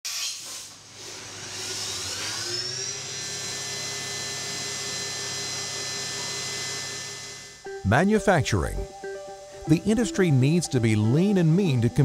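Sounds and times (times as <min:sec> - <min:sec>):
cnc milling machine spindle whine: 0:01.2 - 0:07.6.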